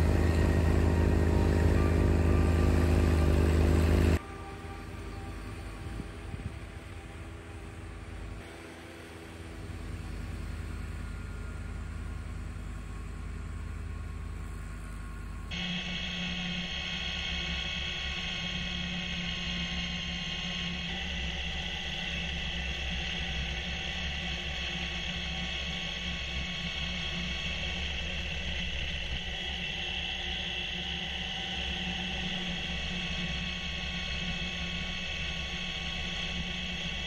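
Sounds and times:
snowblower high whine: 0:00.0 - 0:37.0
tractor diesel engine running: 0:00.0 - 0:37.0.

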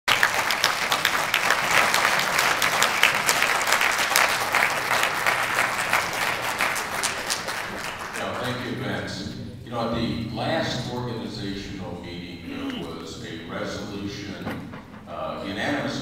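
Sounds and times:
audience applauding: 0:00.0 - 0:08.8, 0:12.4 - 0:13.3.

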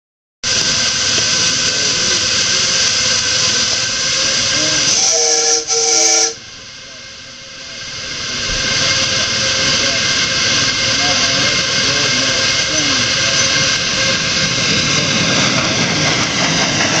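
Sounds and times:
steam venting with a hiss: 0:00.5 - 0:06.4, 0:07.8 - 0:17.0
steam whistle blasts: 0:04.6 - 0:06.4.

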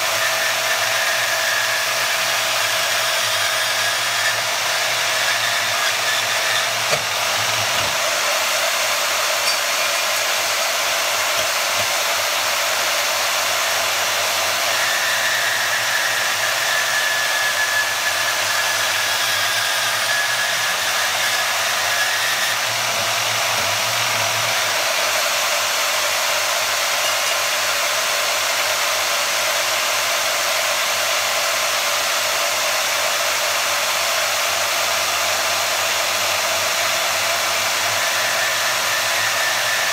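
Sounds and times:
bandsaw running: 0:00.0 - 0:39.9.

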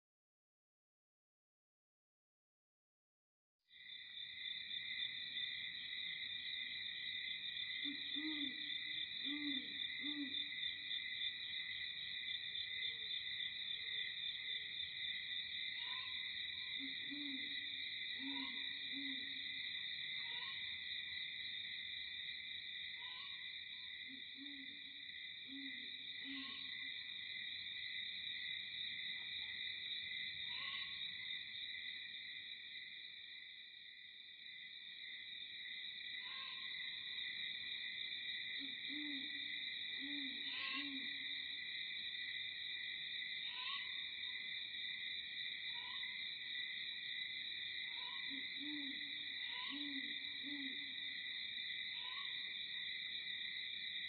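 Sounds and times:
insect chorus trilling: 0:03.8 - 0:54.0
owl hooting: 0:07.8 - 0:10.4, 0:38.6 - 0:41.2, 0:47.9 - 0:51.0.

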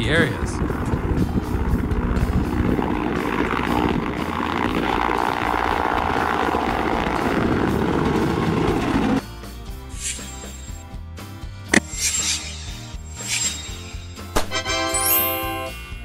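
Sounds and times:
helicopter rotor and engine: 0:00.0 - 0:09.3, 0:09.9 - 0:10.8.

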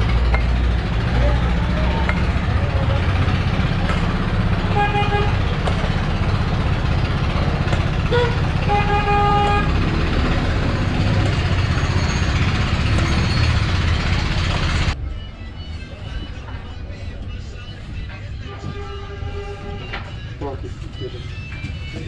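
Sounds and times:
low street rumble: 0:00.0 - 0:22.0
vehicle horn toots: 0:04.5 - 0:05.5, 0:08.0 - 0:10.0, 0:18.5 - 0:20.0.

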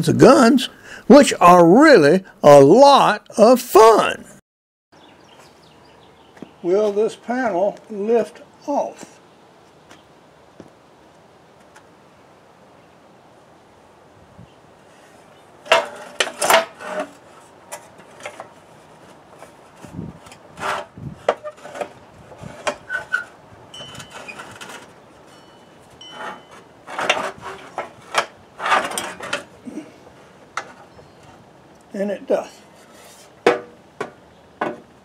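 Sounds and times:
scraping rubs: 0:15.7 - 0:25.4, 0:26.0 - 0:31.4, 0:32.5 - 0:33.4.

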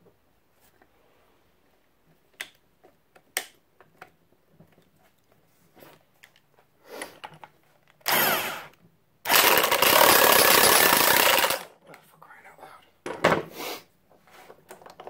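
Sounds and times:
impact wrench running: 0:08.1 - 0:08.7, 0:09.3 - 0:11.7.

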